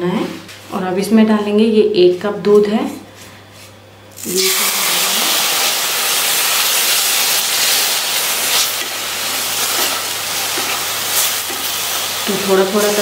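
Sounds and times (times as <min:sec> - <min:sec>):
milk sizzling in hot pan: 0:04.1 - 0:13.0.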